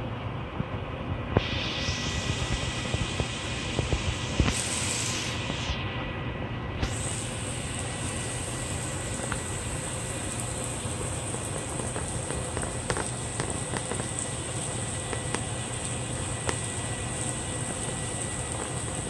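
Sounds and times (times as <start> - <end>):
low steady hum: 0.0 - 19.0
meat sizzling in a frying pan: 1.4 - 5.7, 6.8 - 19.0
fat popping: 11.2 - 16.8.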